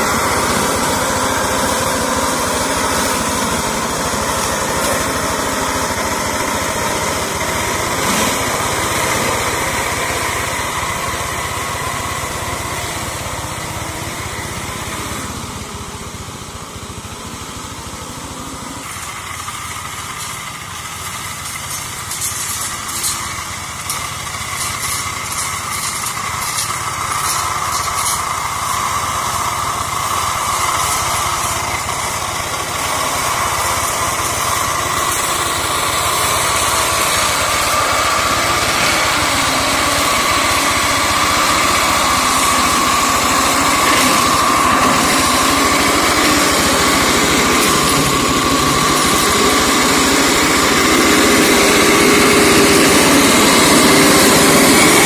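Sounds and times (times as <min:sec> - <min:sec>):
hand tractor mower engine running: 0:00.0 - 0:55.0.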